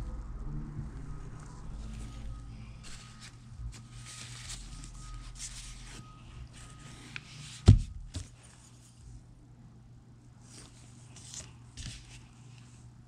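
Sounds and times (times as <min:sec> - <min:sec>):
low steady hum: 0:00.0 - 0:13.0
soft rustles: 0:01.4 - 0:09.1, 0:10.4 - 0:12.8.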